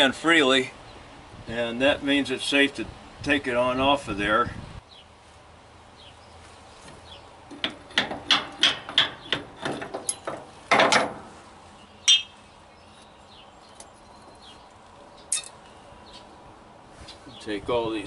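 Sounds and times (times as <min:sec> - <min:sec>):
hammer striking steel: 0:12.1 - 0:12.4.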